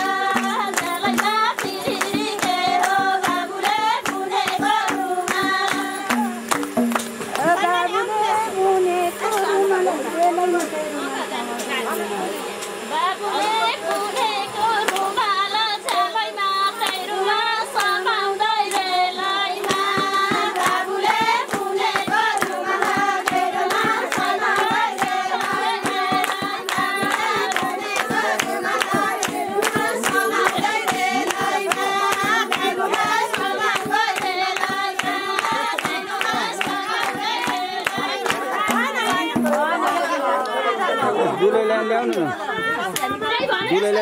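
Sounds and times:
hand-clapping: 0.0 - 7.8, 9.2 - 9.6, 13.4 - 41.0, 42.0 - 43.4
barrel hand drum beat: 0.0 - 8.5, 19.6 - 40.3
women singing together: 0.0 - 11.5, 12.8 - 44.0.

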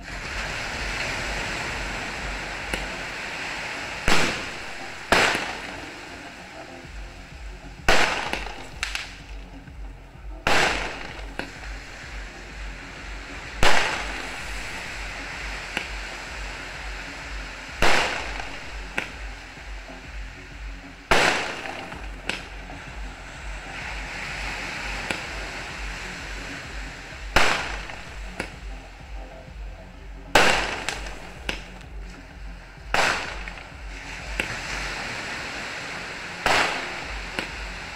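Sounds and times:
steady hiss: 0.0 - 37.9
fireworks booming: 0.2 - 5.9, 7.3 - 9.4, 10.4 - 19.8, 21.1 - 23.0, 24.8 - 28.7, 30.4 - 32.0, 32.9 - 34.6, 36.4 - 37.9
firework cracks: 0.2 - 6.0, 7.9 - 9.4, 10.5 - 12.3, 13.4 - 16.2, 17.5 - 19.3, 21.1 - 22.6, 27.2 - 28.6, 30.4 - 31.9, 32.9 - 34.7, 36.4 - 37.8.

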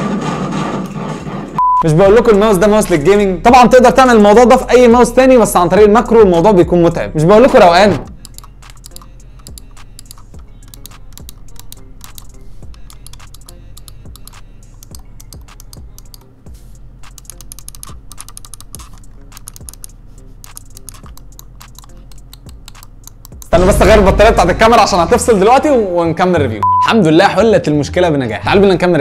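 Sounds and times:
background music with low beat: 1.6 - 29.0
mouse buttons clicking rapidly: 8.1 - 16.3, 17.0 - 23.6.

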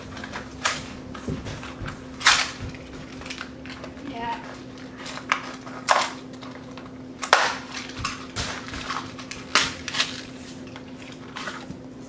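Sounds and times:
cardboard tearing and rustling: 7.2 - 12.0.

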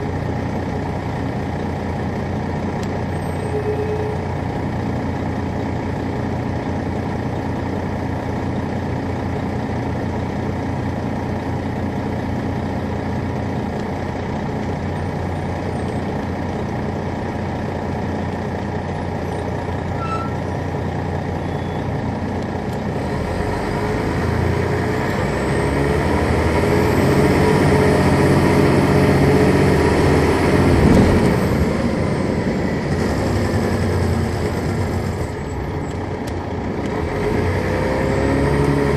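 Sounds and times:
diesel bus engine running: 0.0 - 38.9.

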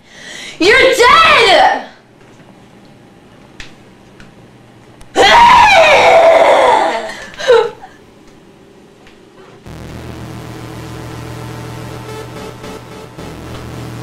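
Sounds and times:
woman screaming: 5.2 - 7.8.

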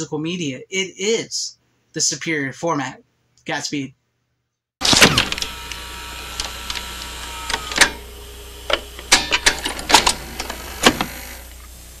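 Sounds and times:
tape mechanism clicking and clunking: 4.8 - 11.7
steady hum: 4.8 - 12.0
faint whine: 4.9 - 12.0.

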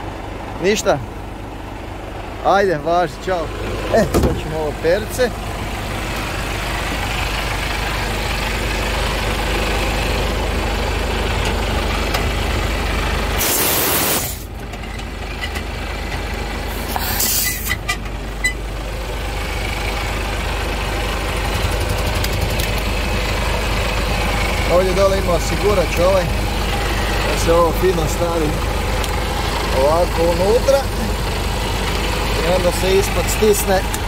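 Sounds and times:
truck diesel engine idling: 0.0 - 34.0
air brake hiss: 13.4 - 14.5, 16.8 - 17.8.

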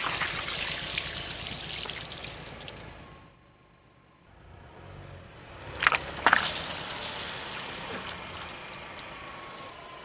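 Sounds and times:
water spraying and splashing: 0.0 - 2.4, 5.9 - 9.2
car rolling rumble: 4.3 - 10.0
water balloons popping: 5.8 - 9.2.

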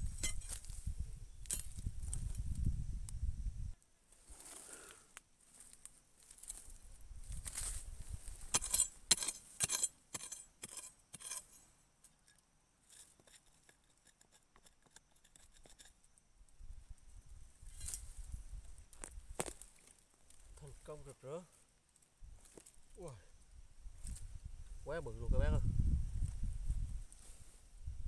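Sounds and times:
steel bar striking stony soil: 0.0 - 0.7, 1.4 - 1.8, 7.5 - 16.0, 17.7 - 18.1
soil and roots crackling: 1.4 - 3.2, 4.1 - 14.3, 17.7 - 23.1.

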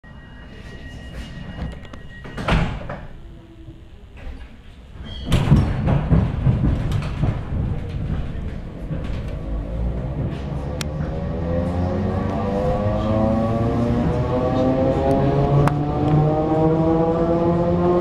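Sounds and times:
train door banging shut: 2.2 - 3.2, 5.0 - 8.3
train rattling rumble: 4.4 - 17.7.

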